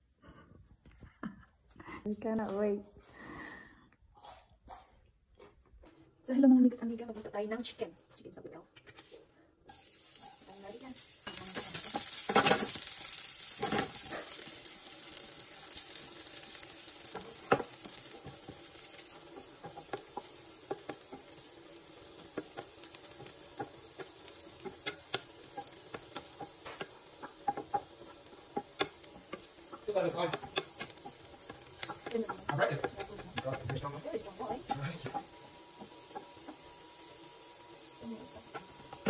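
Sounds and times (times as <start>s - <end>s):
garlic sizzling in oil: 9.6s - 39.0s
spatula tapping against pan: 22.3s - 34.0s.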